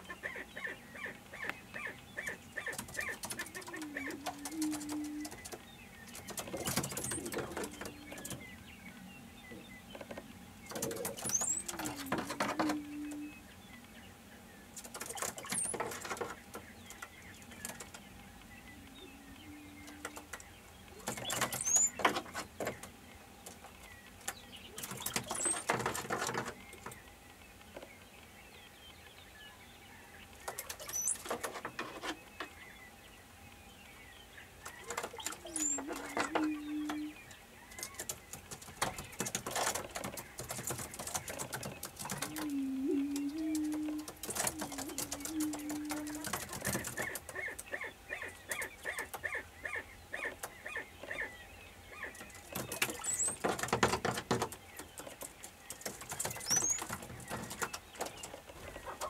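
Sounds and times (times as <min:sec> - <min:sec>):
low booming hoots: 0:42.2 - 0:46.4.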